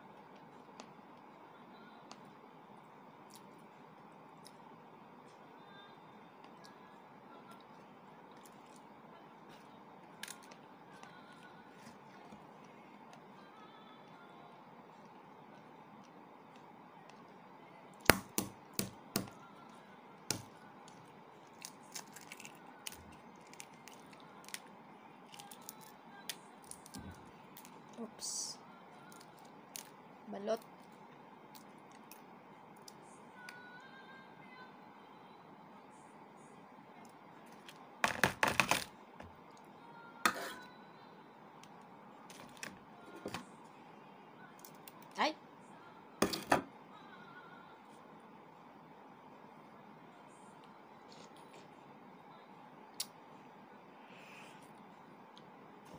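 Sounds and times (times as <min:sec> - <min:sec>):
tableware clicks and knocks: 0:46.2 - 0:46.7.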